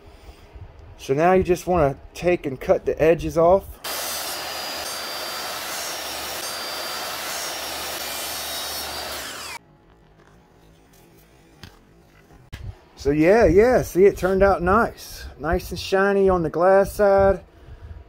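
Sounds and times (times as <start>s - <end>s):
power tool cutting fiberglass: 3.8s - 9.6s.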